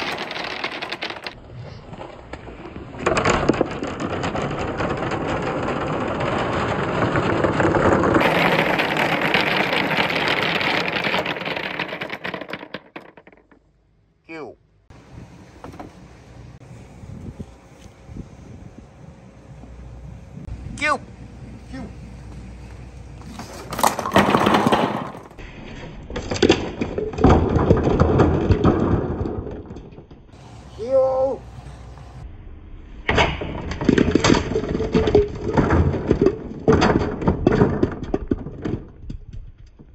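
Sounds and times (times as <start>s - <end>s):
balls rattling down wooden chute: 0.0s - 1.4s, 2.7s - 13.8s, 23.2s - 25.4s, 26.2s - 30.4s, 33.6s - 39.9s
bowling pins clattering: 0.0s - 1.4s, 3.0s - 13.6s, 23.2s - 25.4s.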